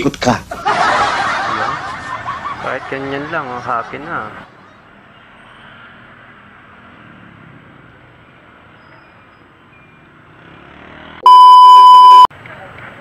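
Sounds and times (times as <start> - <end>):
scooters and motorcycles passing: 3.1 - 11.2.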